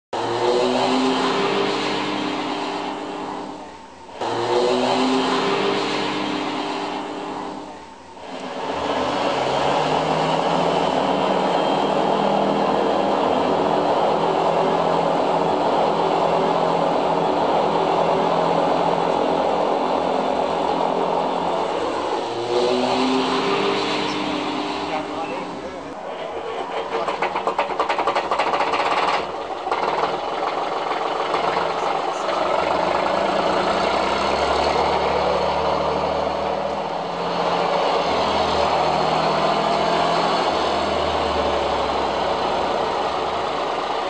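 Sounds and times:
diesel tractor engine through loudspeaker: 0:00.2 - 0:44.0.

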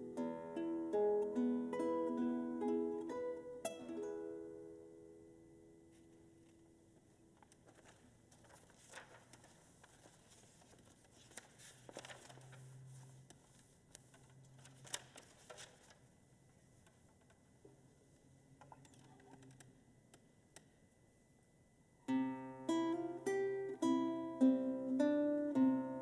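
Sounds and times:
sheet music rustling: 0:05.8 - 0:17.4.

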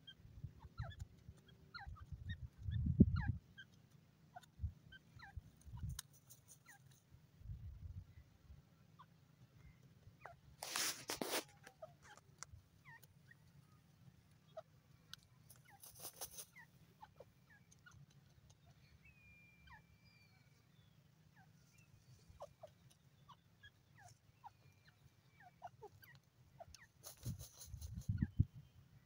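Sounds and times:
faint bird chirps: 0:00.0 - 0:10.6, 0:11.5 - 0:29.0
rustling: 0:10.6 - 0:12.2, 0:15.4 - 0:16.6, 0:26.8 - 0:28.1.

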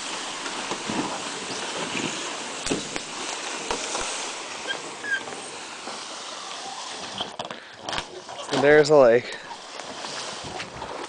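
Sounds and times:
wind on microphone: 0:10.0 - 0:11.0.

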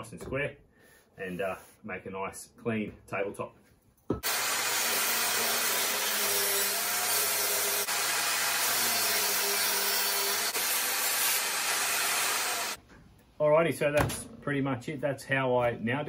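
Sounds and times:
table saw running: 0:04.2 - 0:12.8.

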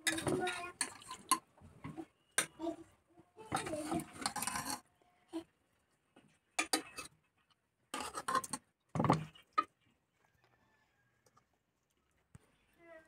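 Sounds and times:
metal spoon scraping bowl: 0:00.0 - 0:01.4, 0:03.5 - 0:04.9, 0:06.6 - 0:07.2, 0:07.9 - 0:08.7.

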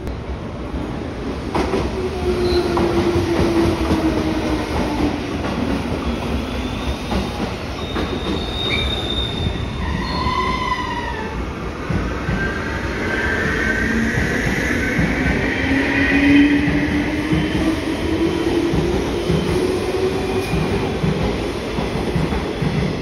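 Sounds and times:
wheel squeals: 0:06.6 - 0:10.6.

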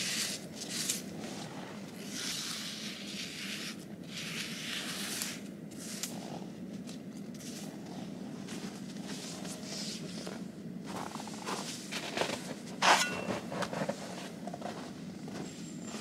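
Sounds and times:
steady low hum: 0:00.0 - 0:16.0
crunching and scraping in snow: 0:07.4 - 0:16.0.

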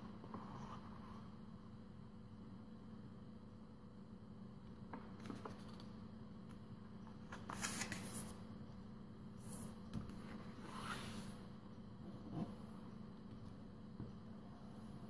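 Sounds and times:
paper rustling and crinkling: 0:07.2 - 0:08.3.

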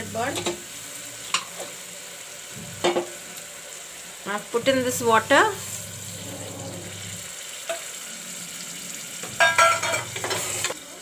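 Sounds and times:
masala sizzling in a pot: 0:00.0 - 0:11.0
spatula scraping a pot: 0:04.7 - 0:07.3, 0:09.3 - 0:10.8.

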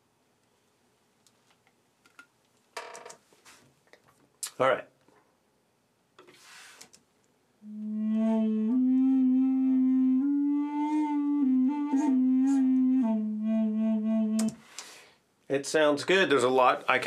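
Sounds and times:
wooden flute playing held notes: 0:07.6 - 0:14.6.

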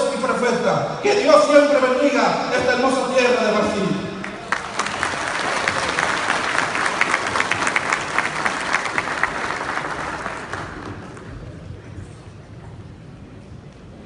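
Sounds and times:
audience applauding: 0:04.2 - 0:11.6.

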